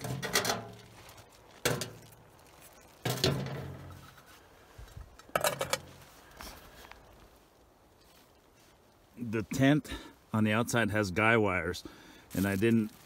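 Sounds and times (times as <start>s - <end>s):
metal pot clunks: 0.0s - 0.8s, 1.6s - 2.0s, 3.0s - 4.0s, 5.3s - 5.9s.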